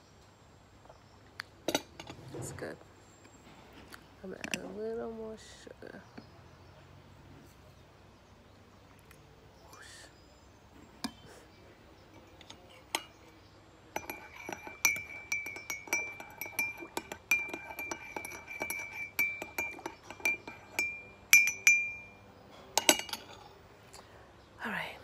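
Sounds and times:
teaspoon clinking in ceramic mug: 12.1 - 23.5.

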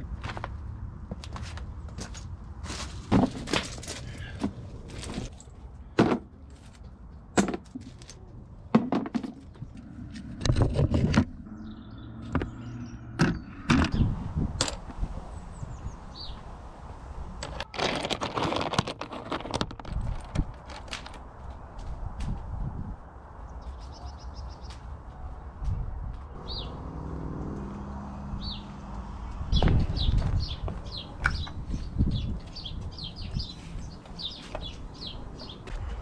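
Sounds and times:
footsteps on gravel: 0.1 - 5.5, 29.3 - 31.2
stones knocking and scraping: 1.3 - 5.4, 6.0 - 11.5, 17.4 - 21.2
small birds chirping: 11.4 - 14.2, 15.2 - 16.5, 23.4 - 25.0, 26.3 - 26.9, 28.3 - 36.0.

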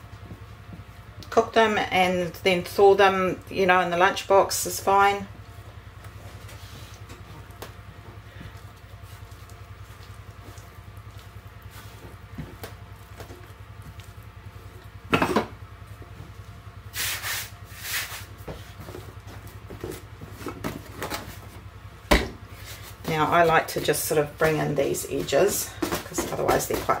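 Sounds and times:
steady low hum: 0.0 - 27.0
flour swishes: 16.9 - 18.8
hands rubbing and tapping dough: 22.6 - 27.0.

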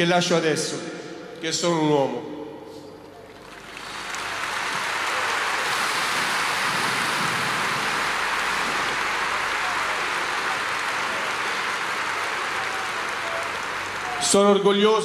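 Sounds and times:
stadium crowd applauding: 3.1 - 15.0.

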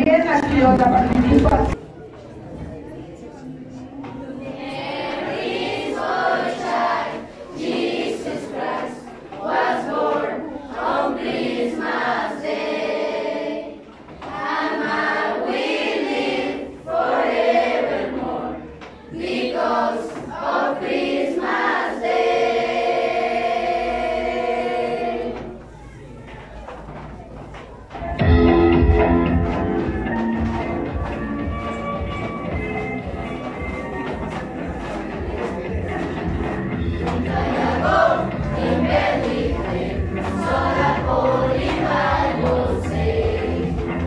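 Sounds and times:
choir singing a carol: 4.3 - 25.6, 36.7 - 44.0.

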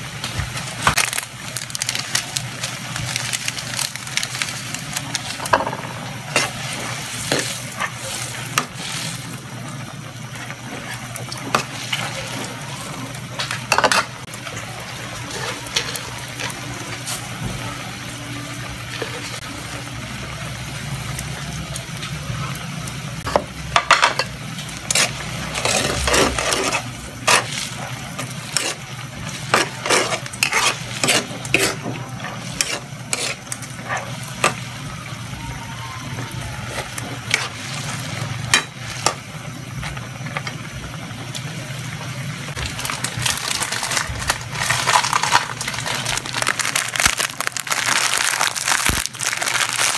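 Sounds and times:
sauce simmering and sizzling: 0.0 - 49.9
metal utensil scraping pan: 23.3 - 34.6.

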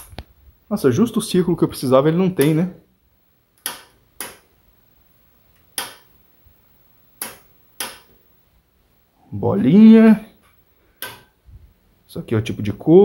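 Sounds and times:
selector switch clicking: 2.4 - 2.6, 3.6 - 4.4, 5.8 - 6.1, 7.2 - 8.1.

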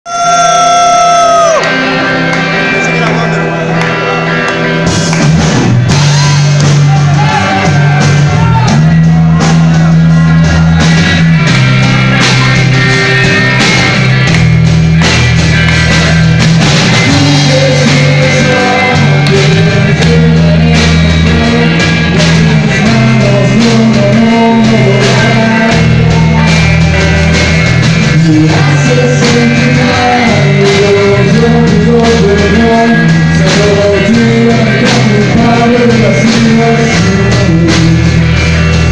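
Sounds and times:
bass guitar: 0.0 - 38.9
man singing: 0.1 - 1.6, 17.0 - 38.9
drum kit: 0.1 - 38.9
electric guitars: 0.1 - 38.9.

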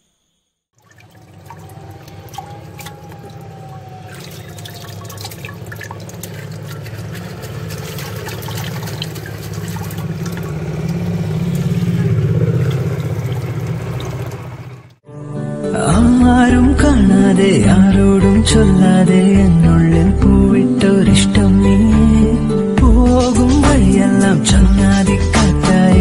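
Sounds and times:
water dripping and splashing: 0.8 - 15.0.

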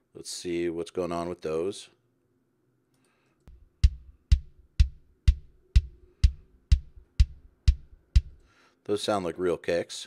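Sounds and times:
kick drum hits: 3.5 - 8.4
faint drum kit bleed: 3.5 - 8.6.

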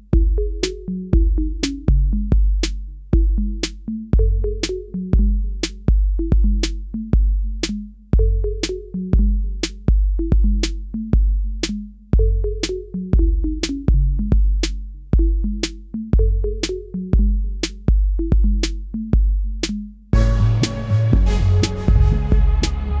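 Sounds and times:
deep synth bass: 0.0 - 23.0
drum machine beat: 0.0 - 23.0.

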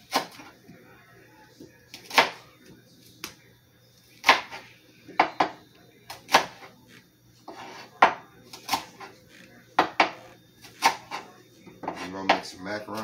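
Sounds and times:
knife chopping on cutting board: 2.0 - 2.4, 4.2 - 4.6, 6.2 - 6.7, 9.8 - 10.2, 10.8 - 11.2, 11.8 - 13.0.

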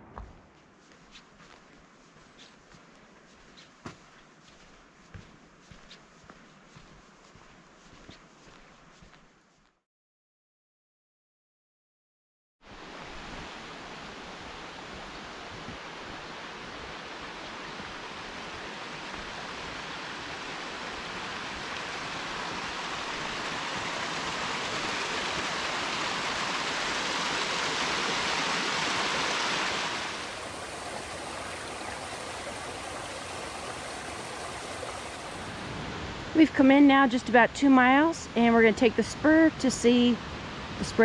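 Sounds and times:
rushing creek water: 12.7 - 36.4.

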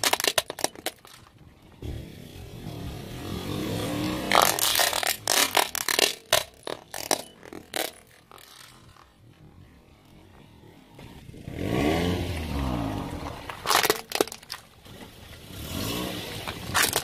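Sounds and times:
plastic cracking under car tyre: 0.0 - 1.8, 4.1 - 9.4, 13.2 - 15.2, 16.4 - 17.0.

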